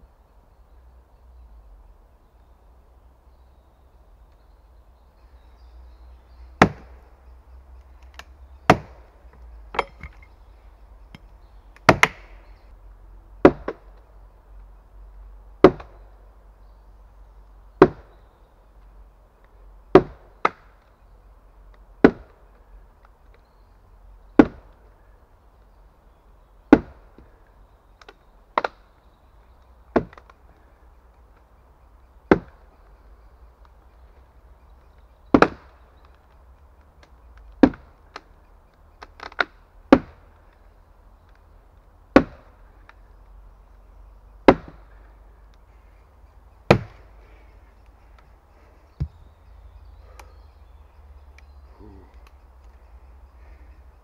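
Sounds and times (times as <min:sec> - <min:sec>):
wooden mallet knocking pegs: 0:09.6 - 0:10.4.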